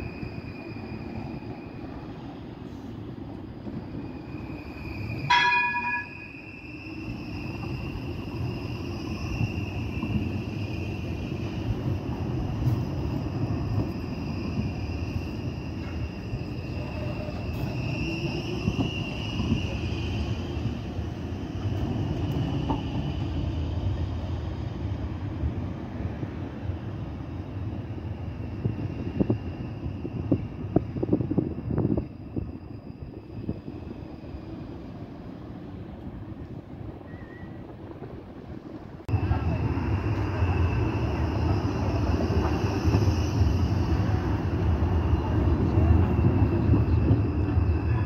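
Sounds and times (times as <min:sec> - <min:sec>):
tram wheels rumbling on rails: 0:00.0 - 0:48.0
tram warning gong ding: 0:05.2 - 0:06.6.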